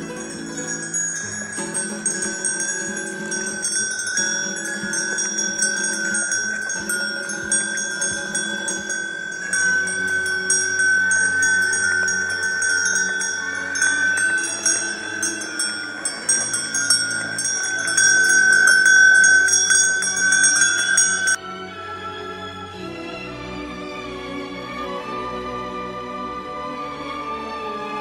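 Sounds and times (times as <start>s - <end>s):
cowbells clanking: 0.0s - 21.4s.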